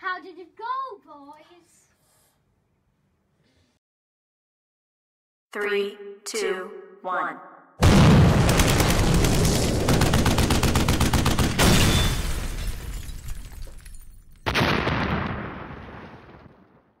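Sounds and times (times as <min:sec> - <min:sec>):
explosions rumbling: 0:07.8 - 0:10.6, 0:14.4 - 0:16.9
machine-gun fire: 0:07.8 - 0:12.1, 0:14.5 - 0:16.4.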